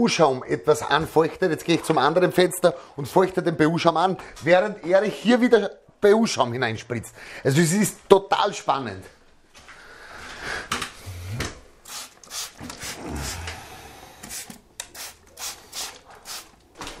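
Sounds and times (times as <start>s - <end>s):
spray bottle squirting water: 11.8s - 13.4s, 14.2s - 16.6s
rubbing and handling noise: 14.2s - 17.0s.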